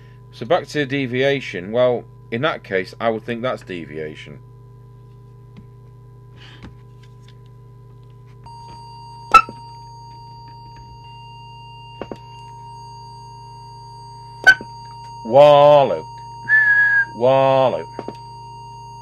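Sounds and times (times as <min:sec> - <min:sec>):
low steady hum: 0:00.0 - 0:19.0
steady test tone: 0:08.5 - 0:19.0.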